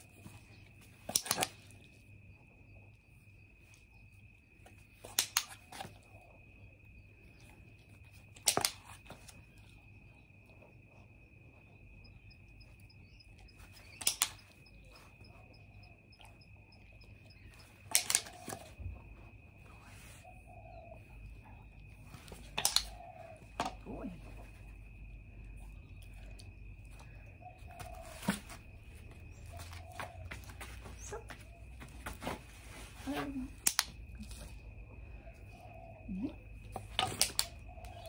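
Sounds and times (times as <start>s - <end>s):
training clicker double clicks: 13.9s - 14.4s, 17.9s - 18.4s.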